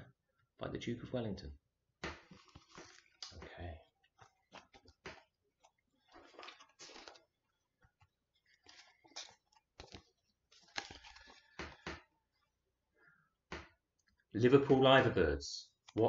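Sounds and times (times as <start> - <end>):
paper pages rustling: 7.8 - 12.0.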